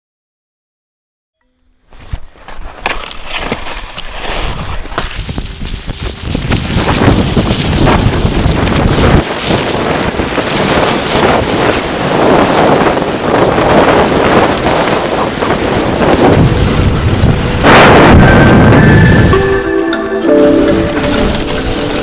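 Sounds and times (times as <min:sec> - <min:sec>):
skis hissing over snow: 0:01.9 - 0:22.0
wind buffeting microphone: 0:03.5 - 0:19.6
music: 0:17.4 - 0:22.0.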